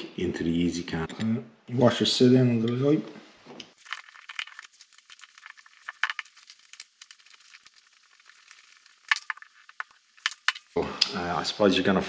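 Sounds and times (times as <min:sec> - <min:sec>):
small parts tapping: 0:03.7 - 0:10.8.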